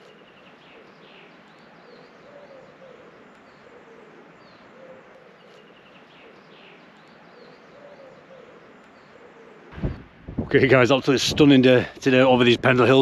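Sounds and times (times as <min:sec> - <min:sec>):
pigeon cooing: 0:00.0 - 0:10.0
background hiss: 0:00.0 - 0:13.0
small birds chirping: 0:00.0 - 0:13.0.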